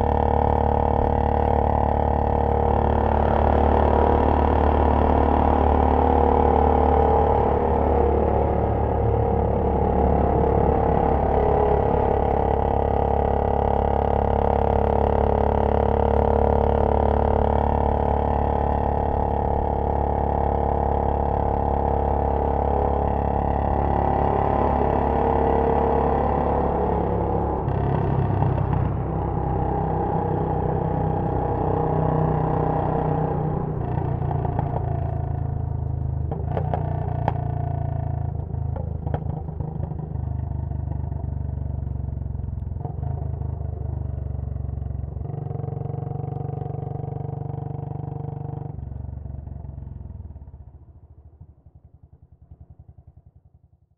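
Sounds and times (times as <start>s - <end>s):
motorcycle engine cruising: 0.0s - 51.2s.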